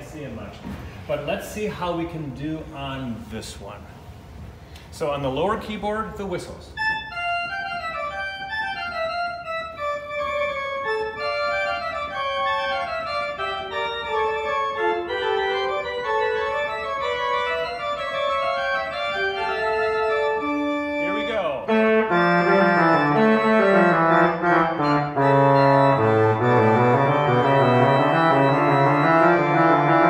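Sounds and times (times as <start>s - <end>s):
pipe organ playing: 6.8s - 30.0s.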